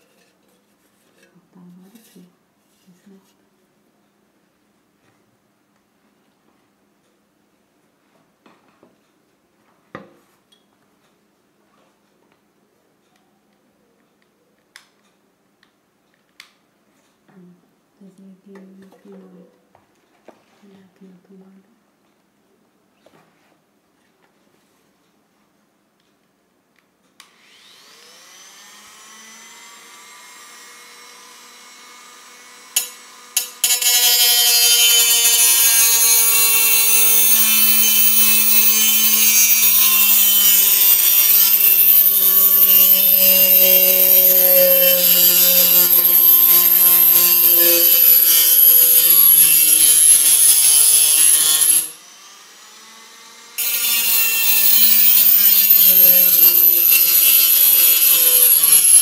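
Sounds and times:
rotary tool whine: 27.3s - 59.0s
disc grinding on metal can: 32.8s - 50.2s, 53.6s - 59.0s.

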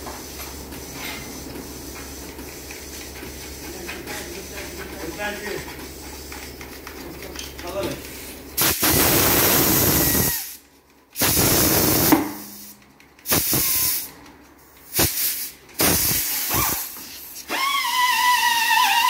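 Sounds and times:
compressed air hissing: 8.6s - 10.6s, 11.2s - 14.1s, 14.9s - 17.5s.

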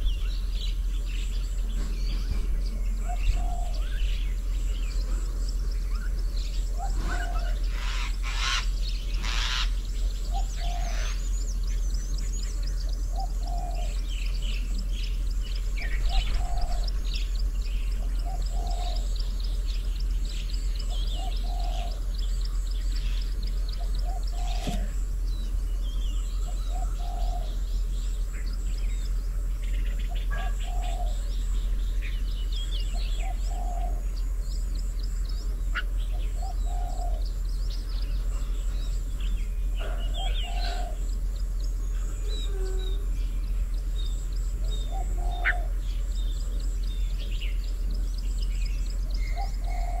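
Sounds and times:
dove cooing: 0.0s - 50.0s
small birds chirping: 0.0s - 50.0s.

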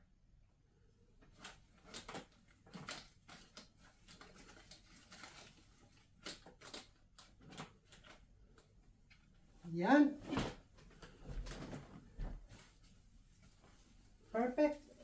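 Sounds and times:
fabric rustling: 9.4s - 15.0s.

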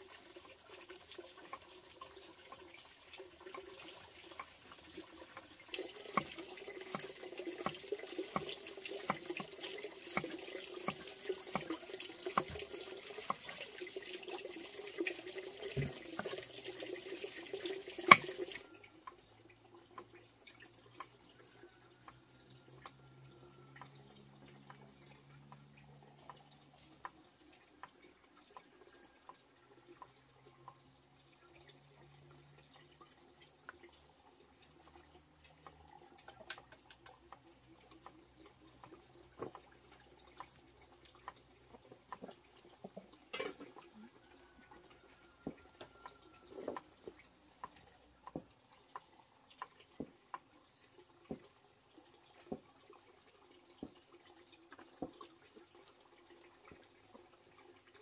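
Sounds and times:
water trickling into tub: 0.0s - 58.0s.

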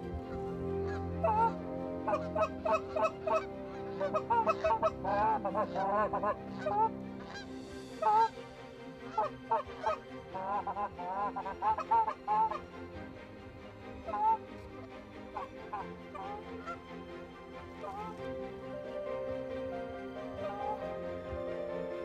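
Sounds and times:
geese honking in flight: 0.0s - 8.3s, 9.1s - 12.7s, 14.0s - 16.8s, 17.8s - 18.2s, 20.2s - 21.3s.

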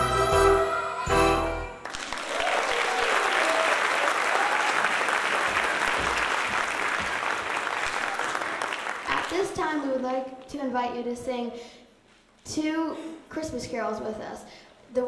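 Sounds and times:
audience applauding: 1.8s - 9.5s.

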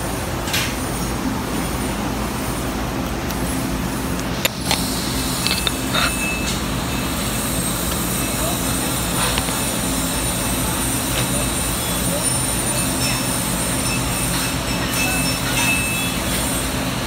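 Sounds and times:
welding arc hissing: 2.4s - 14.7s.

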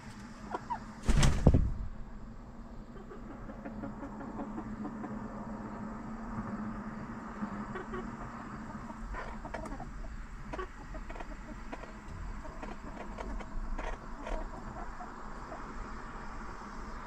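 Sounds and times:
hens clucking: 0.0s - 1.0s, 2.7s - 5.8s, 7.3s - 16.1s
steady low hum: 0.0s - 17.0s.

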